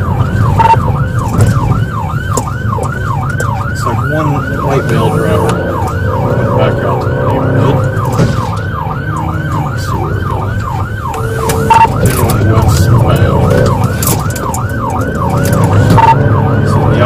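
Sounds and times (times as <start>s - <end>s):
car engine and road noise: 0.0s - 17.0s
police siren fast yelp: 0.0s - 17.0s
short beep: 11.1s - 12.0s.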